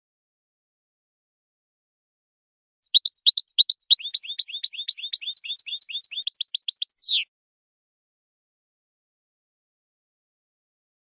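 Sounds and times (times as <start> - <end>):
bird singing high twittering: 2.8 - 7.3.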